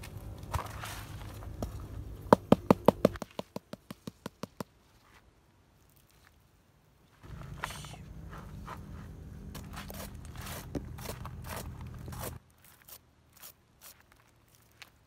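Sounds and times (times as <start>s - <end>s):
low steady hum: 7.0s - 12.4s
knife scraping charred skin: 9.6s - 14.8s.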